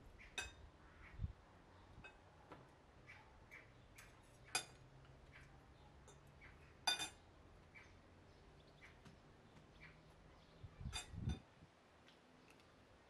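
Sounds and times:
cutlery clinking on plates: 4.5s - 4.8s, 6.9s - 7.2s, 10.9s - 11.5s.

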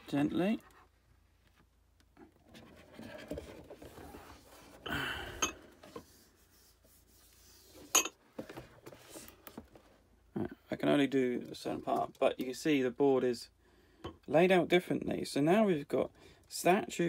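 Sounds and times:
cardboard panels sliding and rubbing: 2.4s - 4.8s, 5.8s - 9.9s.

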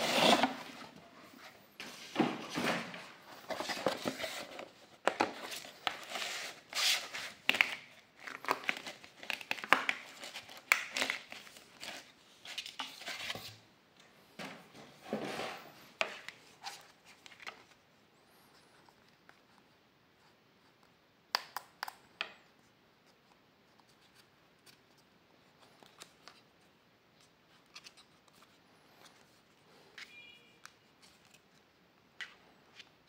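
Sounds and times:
scraping and rubbing on packaging: 0.0s - 2.1s, 3.4s - 7.4s
cardboard packaging rustling: 0.0s - 13.6s.

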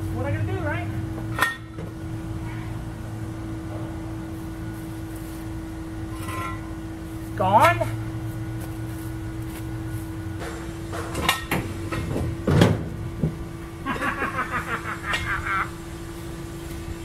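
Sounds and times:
metal clunks and knocks: 10.4s - 13.4s.

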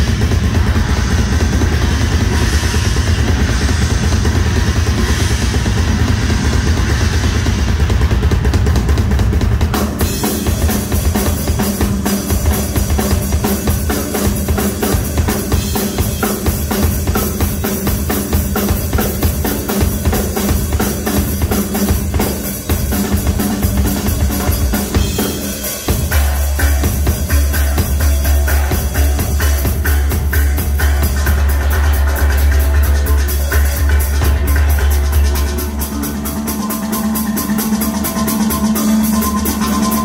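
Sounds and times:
cymbals: 0.0s - 40.0s
deep heavy bass drum: 0.0s - 40.0s
drum solo: 0.0s - 40.0s.

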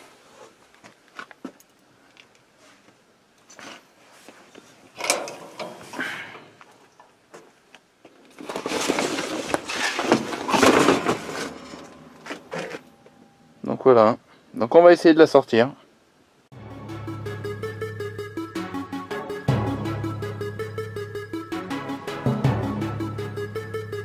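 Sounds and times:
duvet and plastic cover rustling: 8.3s - 11.8s.

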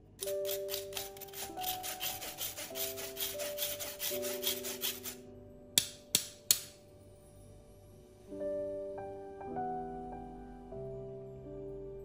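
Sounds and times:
soft background music: 0.0s - 12.0s
spoon scraping through a mesh sieve: 0.2s - 5.2s.

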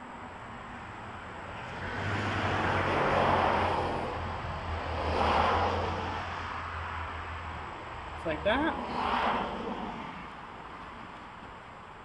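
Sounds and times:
vehicles passing: 0.0s - 12.0s.

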